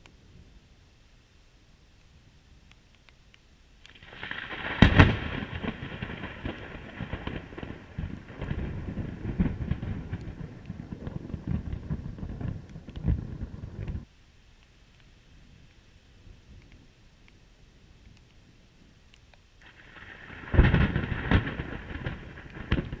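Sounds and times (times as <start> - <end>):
thunder crack and rumble: 4.0 - 14.1, 19.6 - 23.0.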